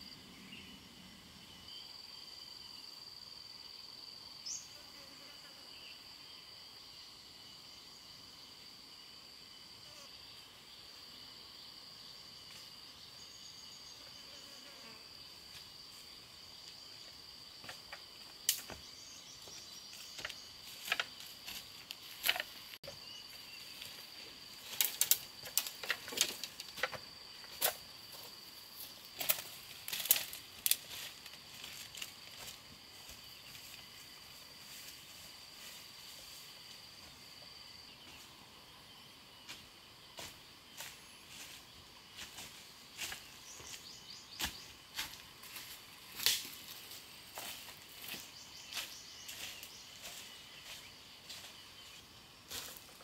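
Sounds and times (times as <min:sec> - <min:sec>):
insects droning: 0:00.0 - 0:53.0
footsteps through undergrowth: 0:15.4 - 0:37.4, 0:39.4 - 0:53.0.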